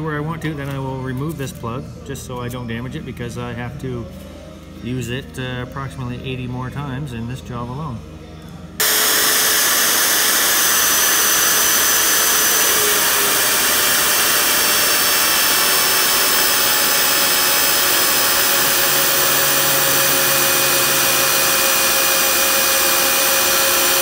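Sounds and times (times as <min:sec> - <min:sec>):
magnetic drill whirring: 0:08.8 - 0:24.0.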